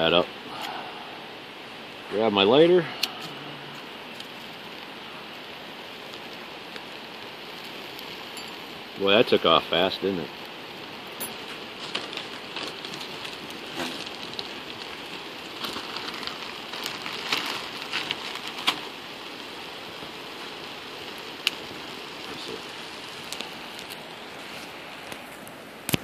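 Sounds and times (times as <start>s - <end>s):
fire hissing and crackling: 0.0s - 26.0s
plastic bag rustling: 11.2s - 19.4s, 22.4s - 25.5s.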